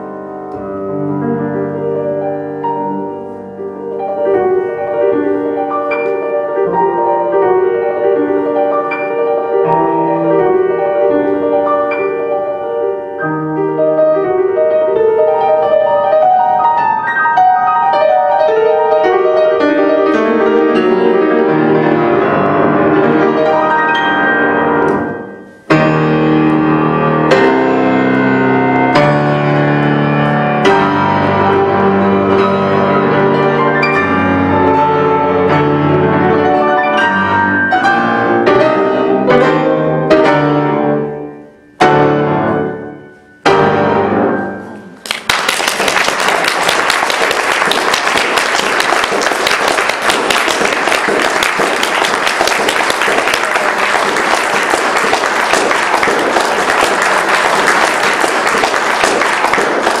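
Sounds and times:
grand pianos playing classical piece: 0.0s - 60.0s
audience applause: 45.0s - 60.0s.

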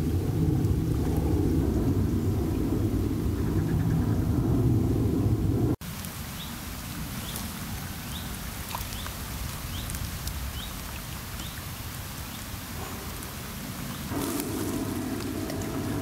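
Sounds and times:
light rain pattering: 0.0s - 3.3s, 5.8s - 16.0s
low rumble: 0.0s - 5.8s, 13.6s - 16.0s.

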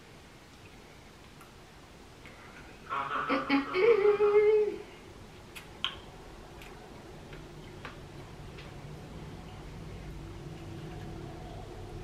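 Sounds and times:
mouth clicks and smacks: 5.4s - 8.3s.

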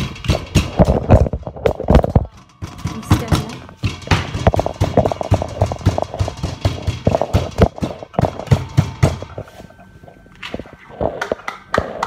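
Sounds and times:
pestle pounding potato: 0.0s - 9.4s.

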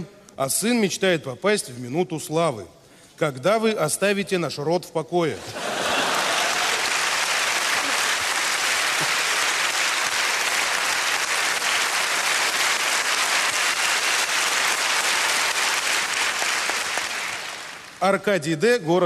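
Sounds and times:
audience applauding: 5.5s - 18.0s.

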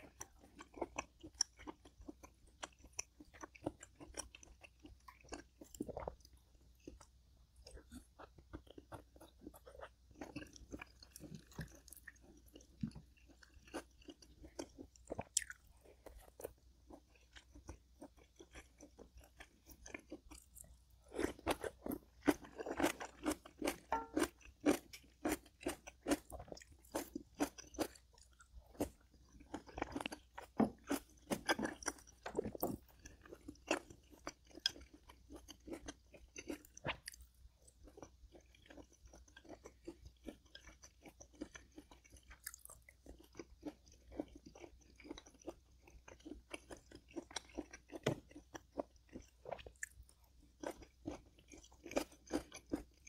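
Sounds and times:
person chewing crunchy food: 0.0s - 53.0s.

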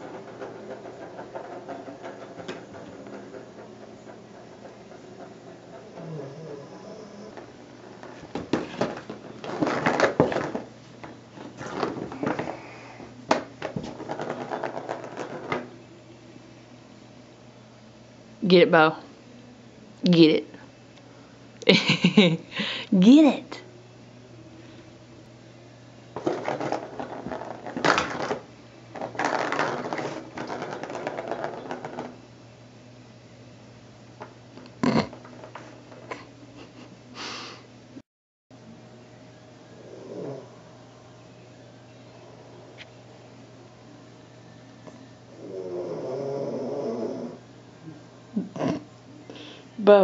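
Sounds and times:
plastic ball rattling in track: 0.0s - 12.6s, 13.3s - 15.7s, 26.2s - 32.2s, 34.2s - 36.2s.

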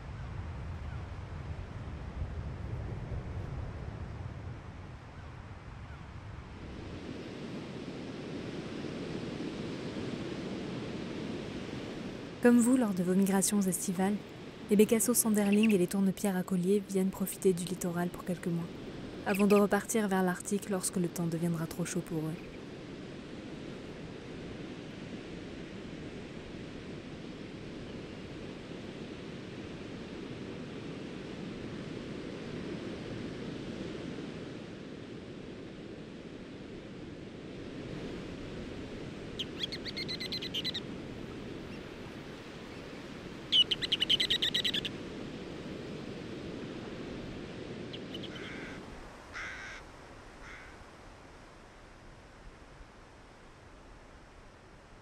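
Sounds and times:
bird chattering rattle calls: 39.4s - 40.8s, 43.5s - 44.9s, 48.0s - 48.8s.

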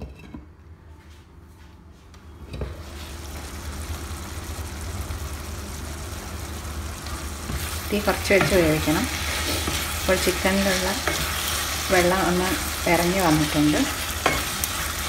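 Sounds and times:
chicken sizzling: 2.6s - 15.0s.

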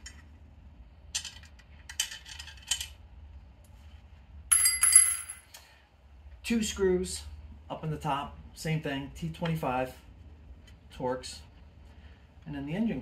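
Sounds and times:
bright metallic clink: 4.5s - 5.5s.

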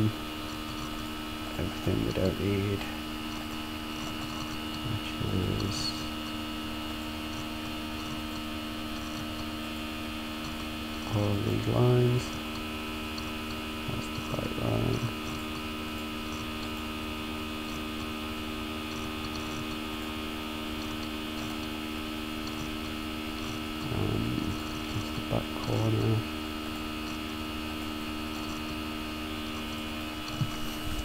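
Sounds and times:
electrical mains hum: 0.0s - 31.0s.

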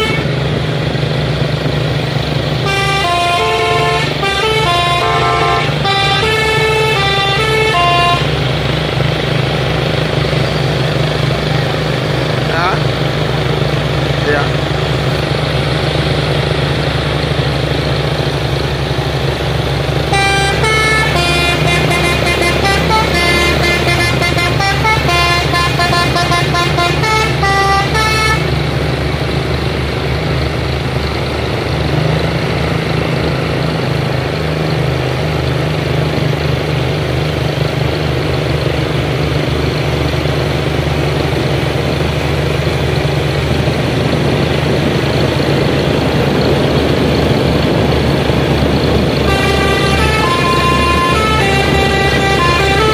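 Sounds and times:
musical horn tune: 0.0s - 0.4s, 2.6s - 8.5s, 20.0s - 28.6s, 49.1s - 52.9s
diesel truck engines under load: 0.0s - 52.9s.

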